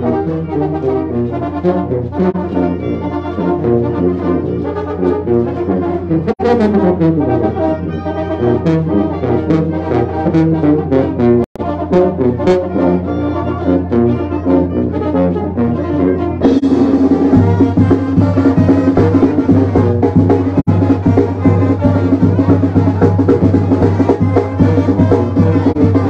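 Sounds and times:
brass band playing: 0.0 - 26.0
snare drum: 16.4 - 26.0.

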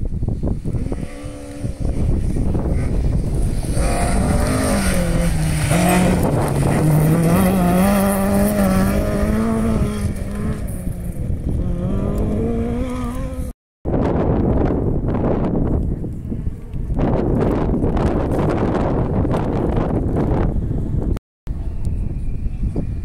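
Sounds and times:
rally car engine passing: 0.6 - 13.5.

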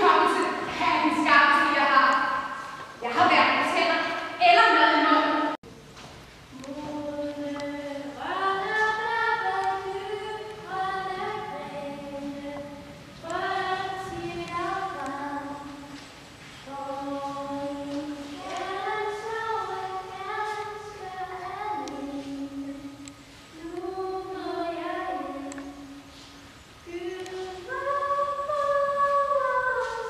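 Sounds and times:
choir of young voices singing: 6.7 - 16.0.

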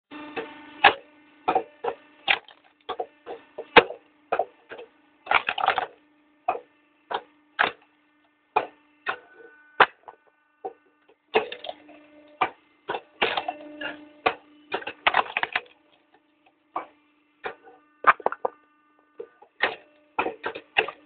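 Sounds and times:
log splitter motor humming: 0.1 - 21.0
wood cracking and splintering: 2.3 - 2.6, 5.3 - 5.9, 14.8 - 15.7.

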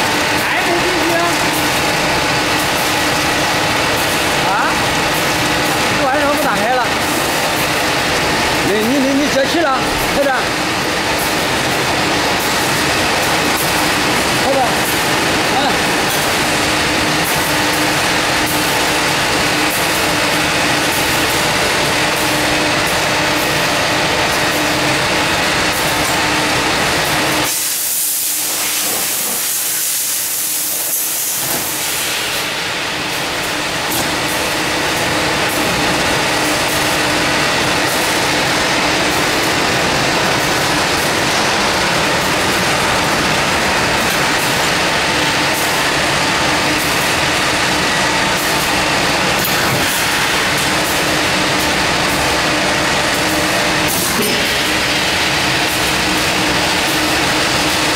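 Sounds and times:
frying line machinery noise: 0.0 - 57.9
loud high hiss: 27.4 - 33.1.

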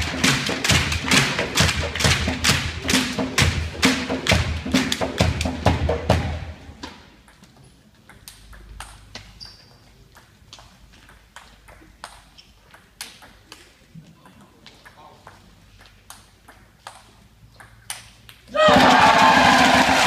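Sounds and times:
music with loud drumbeat: 0.0 - 6.7, 18.6 - 20.0
table tennis ball pinging: 7.2 - 10.3, 15.3 - 18.5.

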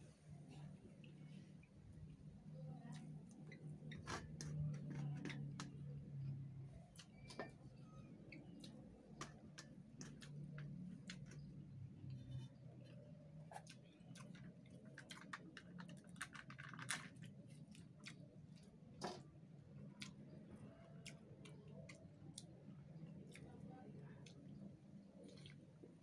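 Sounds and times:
low steady hum: 0.0 - 26.0
small clicks and smacks: 8.3 - 19.3.

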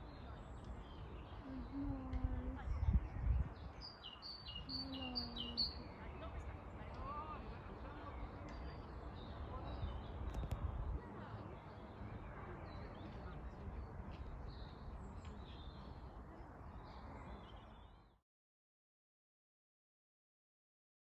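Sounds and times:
small birds chirping: 0.0 - 7.4.

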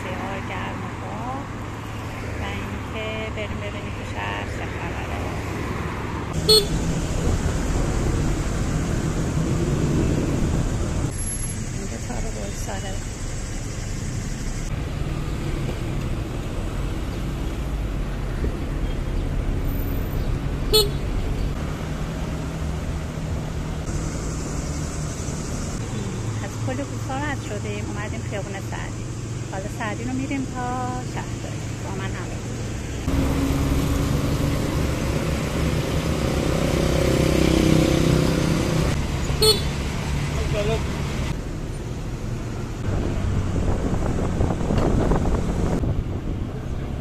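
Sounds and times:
road and wind noise: 0.0 - 47.0
vehicle horn beep: 6.4 - 6.8, 20.7 - 21.0, 39.4 - 39.7.

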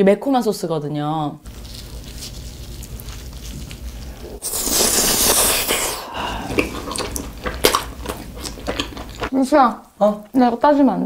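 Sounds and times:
pizza crust crunching when bitten: 1.5 - 9.3
chewing clicks: 6.5 - 9.3.

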